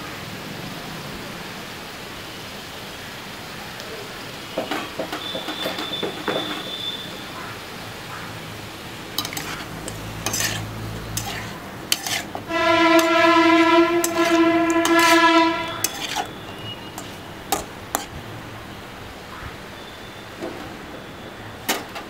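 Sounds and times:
metal spatula scraping a metal pan: 9.2s - 18.2s
horn blast: 12.4s - 17.2s.

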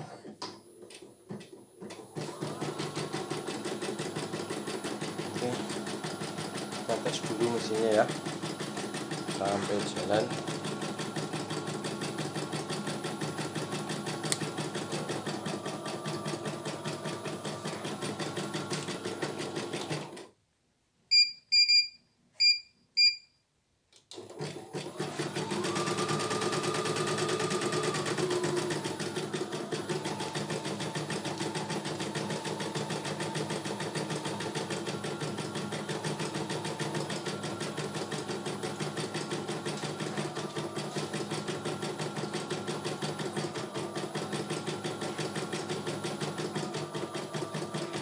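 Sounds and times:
embroidery machine stitching: 1.4s - 20.3s, 24.1s - 48.0s
short high beeps: 21.1s - 23.4s.

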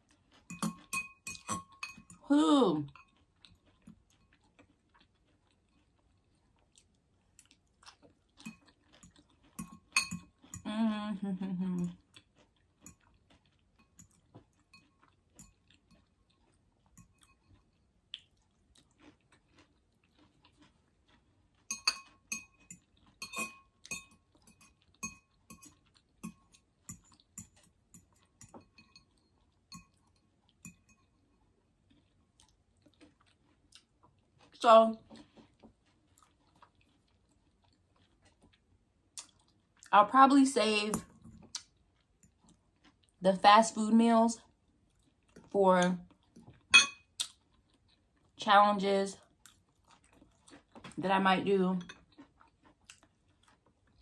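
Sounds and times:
soft chewing: 0.0s - 54.0s
fork clinking on glass bowl: 0.5s - 2.2s, 9.6s - 10.6s, 21.7s - 31.1s, 46.7s - 47.1s.

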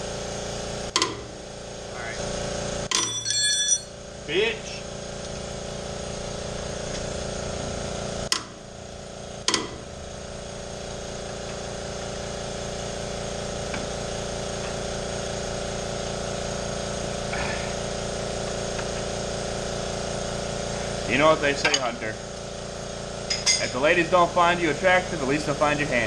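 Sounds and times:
air compressor humming: 0.0s - 26.0s
metallic clinks of tools: 2.9s - 3.9s.

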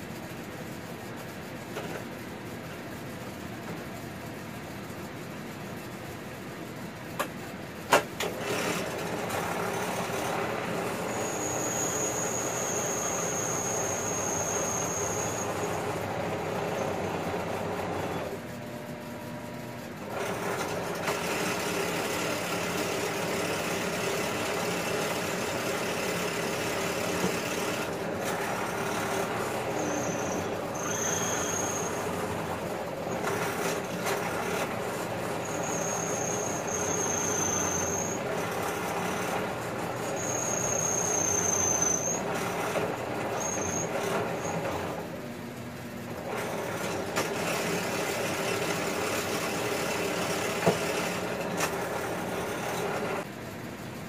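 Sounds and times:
drill press drilling into copper: 8.3s - 18.2s, 20.2s - 32.3s, 40.0s - 44.8s, 46.4s - 53.2s
high squeal from cutting: 10.8s - 17.0s, 26.4s - 33.8s, 35.3s - 39.4s, 40.0s - 44.8s.

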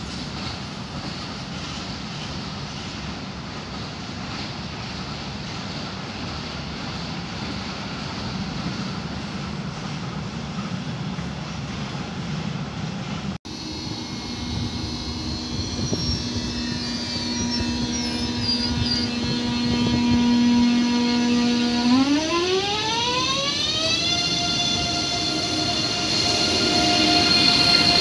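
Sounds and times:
electric train humming whine: 13.5s - 28.0s.

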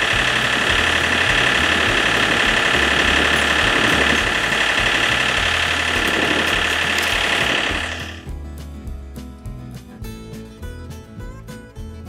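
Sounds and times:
tractor diesel engine idling: 0.0s - 8.3s.

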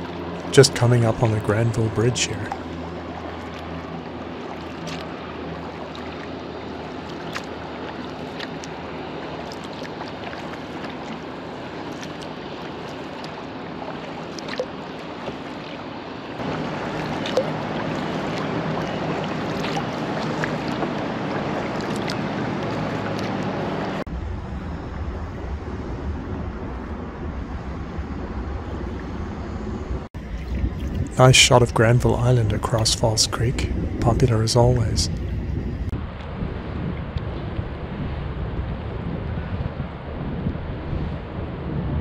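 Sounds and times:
water splashing around a kayak: 0.0s - 29.2s, 30.0s - 42.0s
small clicks and drips: 4.5s - 5.2s, 5.8s - 8.8s, 9.4s - 11.2s, 11.8s - 15.8s, 16.4s - 23.6s.

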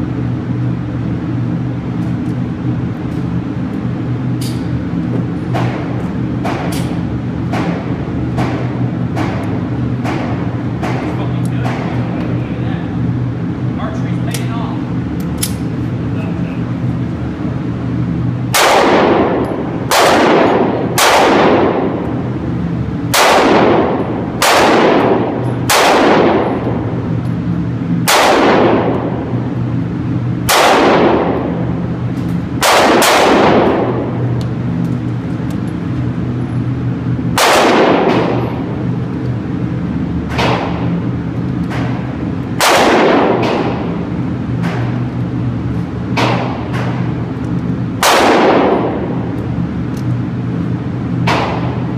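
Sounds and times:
pistol shots echoing indoors: 5.4s - 12.2s, 18.4s - 51.9s.

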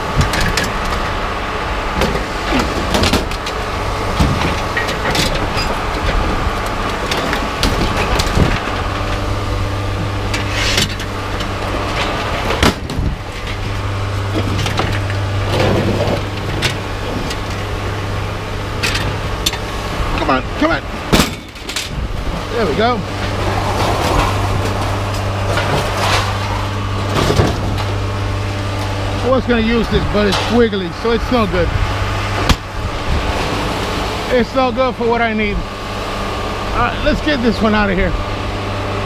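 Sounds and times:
engine hum: 0.0s - 39.0s
scrap metal clanking: 10.2s - 17.7s, 23.1s - 28.0s.

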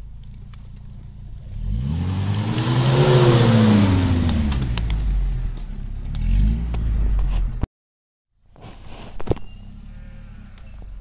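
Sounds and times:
off-road vehicle engine revving: 0.6s - 7.6s, 9.5s - 11.0s
tyres churning mud: 1.6s - 5.1s.

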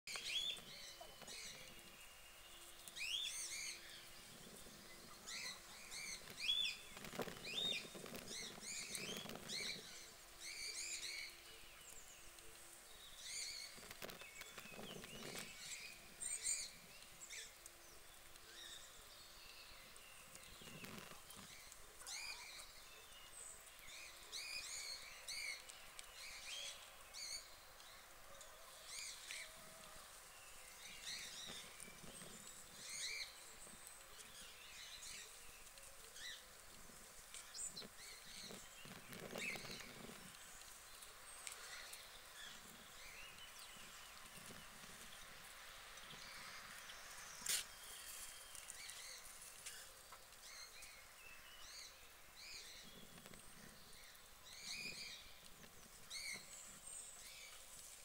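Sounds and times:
soft low rustling: 0.1s - 19.1s
small birds chirping: 0.1s - 58.0s.

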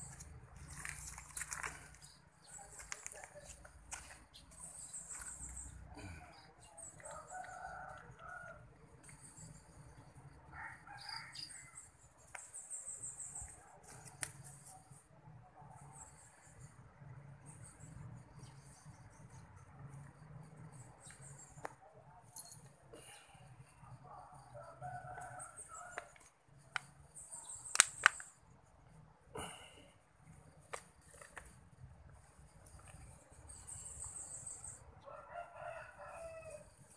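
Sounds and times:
distant bird calls: 0.0s - 14.2s.

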